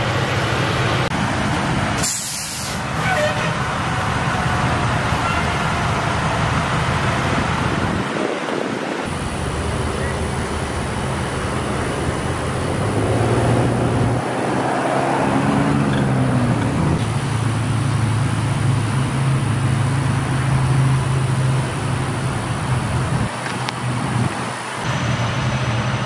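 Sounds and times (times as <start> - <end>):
road traffic noise: 0.0 - 26.0
vehicle engine idling: 9.1 - 13.0.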